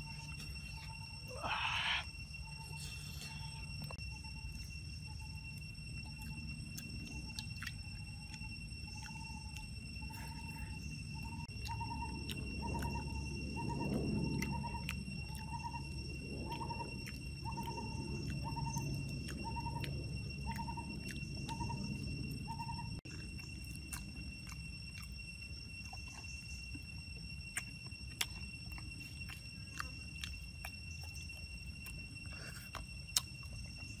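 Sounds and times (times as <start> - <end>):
high-pitched insect drone: 0.0 - 34.0
bird hooting: 0.8 - 3.7.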